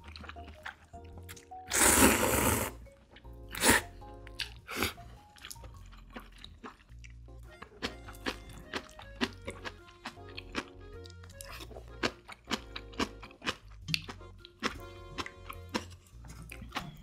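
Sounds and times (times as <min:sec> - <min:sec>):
eating sounds: 0:00.0 - 0:17.0
soft background music: 0:00.0 - 0:17.0
slurping noodles: 0:01.6 - 0:02.8, 0:03.5 - 0:05.6.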